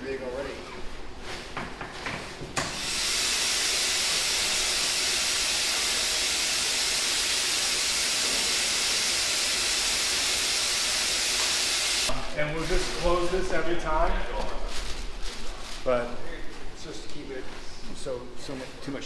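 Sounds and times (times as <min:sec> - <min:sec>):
compressed air hissing: 0:02.6 - 0:12.2.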